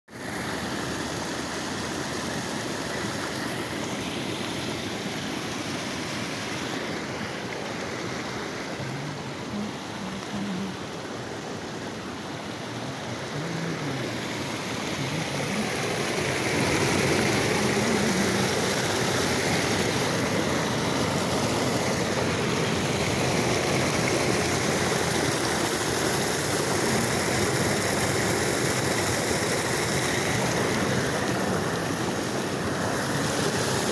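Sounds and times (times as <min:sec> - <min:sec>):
water rushing down a ditch: 0:00.1 - 0:33.9.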